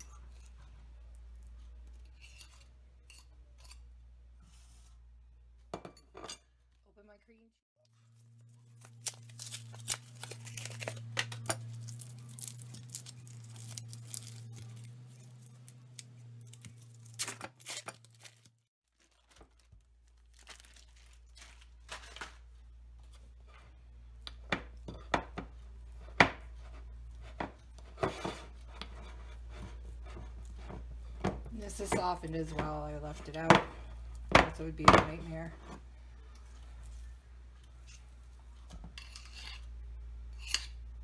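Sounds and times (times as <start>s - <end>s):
foil wrapper crinkling and tearing: 8.2s - 22.7s.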